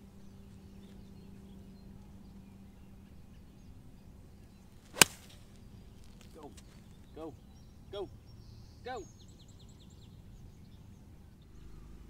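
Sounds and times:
golf club striking ball: 0:04.9 - 0:05.4.

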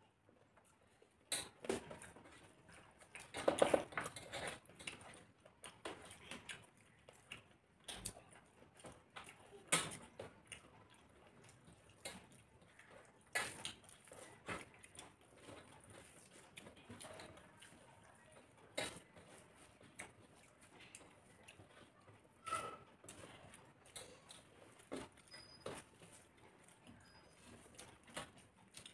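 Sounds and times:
fingers mixing rice on metal plates: 0:00.4 - 0:28.9
chewing mouth sounds: 0:04.0 - 0:22.4.

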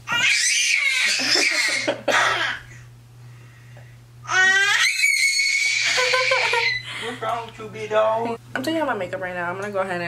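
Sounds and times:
baby screaming: 0:00.1 - 0:02.8, 0:04.2 - 0:06.8.

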